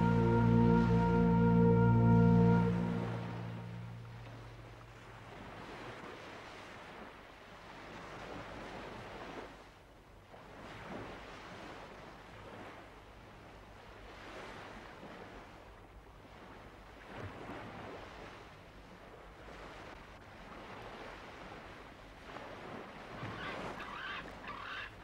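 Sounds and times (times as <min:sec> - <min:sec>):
faint waves breaking on shore: 0:00.0 - 0:25.0
birds calling: 0:23.3 - 0:24.9.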